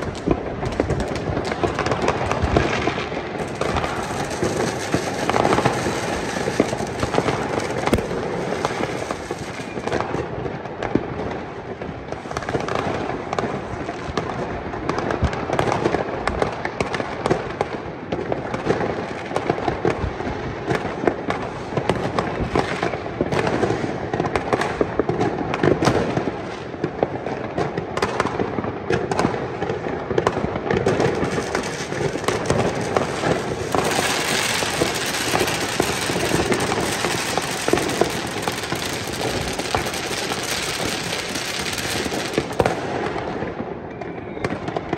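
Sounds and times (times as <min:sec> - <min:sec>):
fireworks bangs and pops: 0:00.0 - 0:44.9
hissing crackle: 0:02.9 - 0:09.9, 0:31.0 - 0:42.8.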